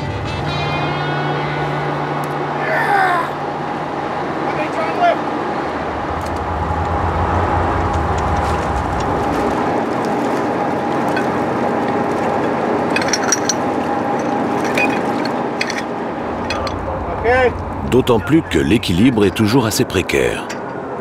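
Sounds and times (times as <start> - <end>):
engine drone: 0.0 - 21.0
low hum: 5.2 - 21.0
heavy chains clinking: 11.0 - 17.1.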